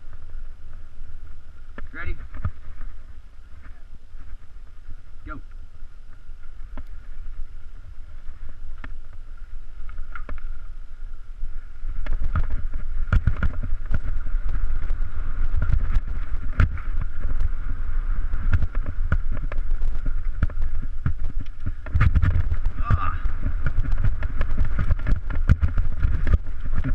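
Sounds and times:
wind rumbling on camera: 0.0 - 26.9
bike knocks and rattles: 12.0 - 26.9.

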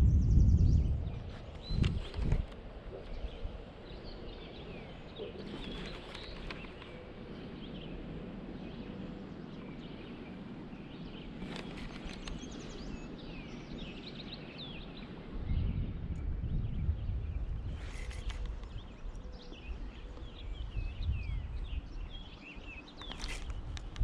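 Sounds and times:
small birds chirping: 0.0 - 24.0
steady background hiss: 1.4 - 16.4.

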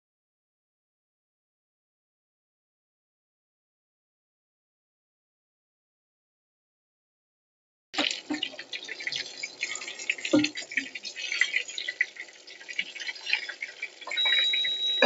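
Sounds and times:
chicken frying in hot oil: 8.0 - 15.0.

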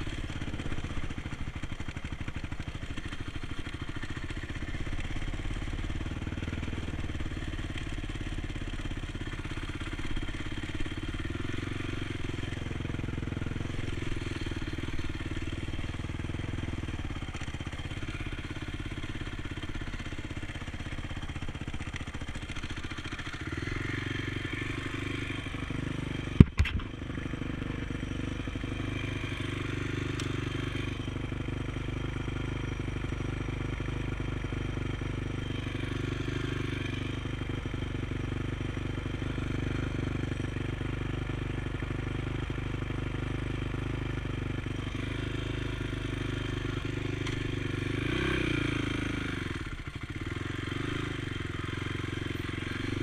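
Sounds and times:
quad engine running: 0.0 - 53.0
sharp knock: 26.3 - 26.9.

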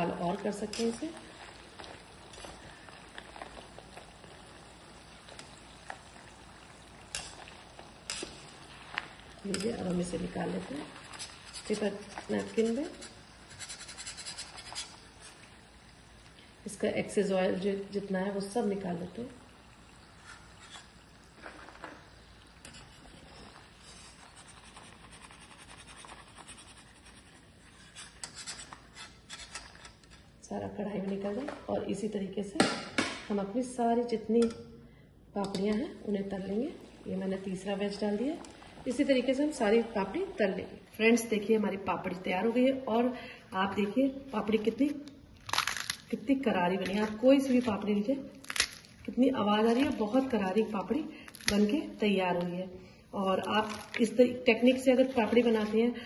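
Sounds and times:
food sizzling in hot oil: 0.2 - 16.6, 18.4 - 24.3.

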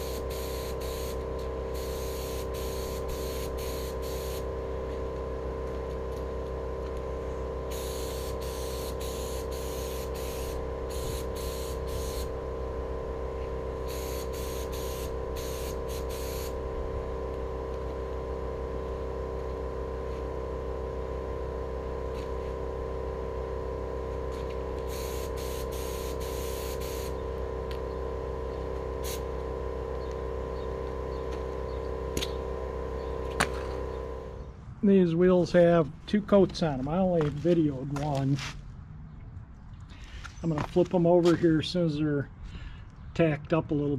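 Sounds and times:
paint spray gun hissing: 0.0 - 6.2, 7.3 - 12.4, 13.4 - 16.7, 24.3 - 34.5
air compressor humming: 0.0 - 38.4.

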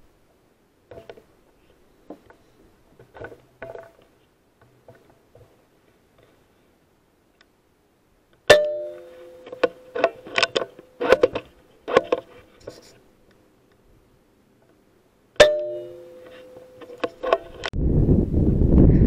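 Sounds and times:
sharp clicks and knocks: 8.4 - 12.9, 15.4 - 17.7.

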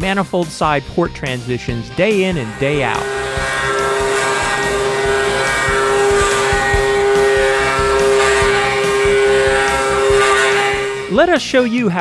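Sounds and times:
machine spindle whining: 2.1 - 11.2.

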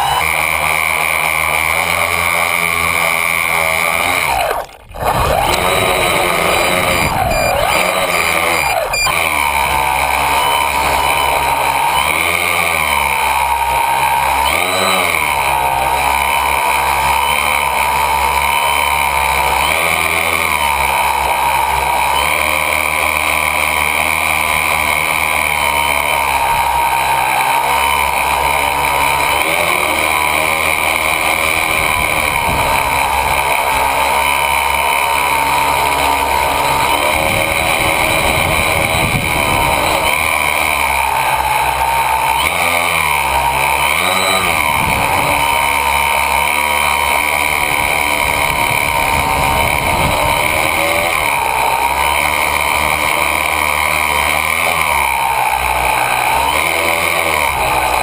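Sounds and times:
drone motors buzzing: 0.0 - 58.0.

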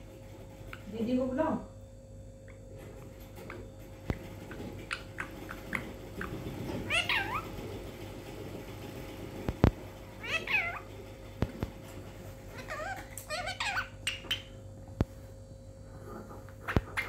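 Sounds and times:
parrot chirping and calling: 4.8 - 7.5, 10.2 - 10.9, 12.5 - 14.6, 16.5 - 17.0.

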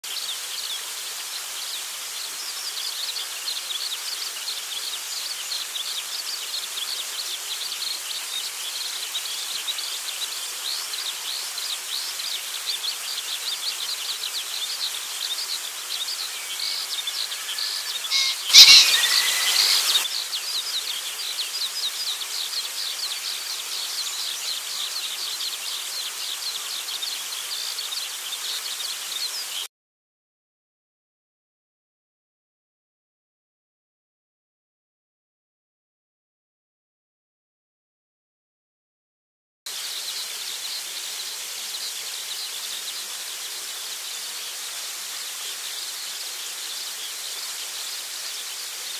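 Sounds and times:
insects chirring: 16.2 - 20.0
pheasant crow: 16.8 - 20.1.

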